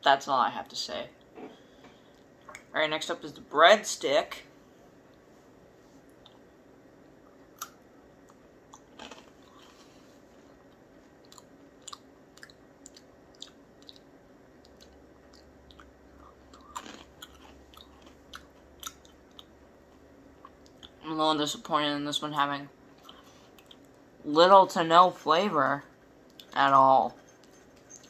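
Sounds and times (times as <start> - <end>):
person chewing crunchy snack: 7.5 - 21.0.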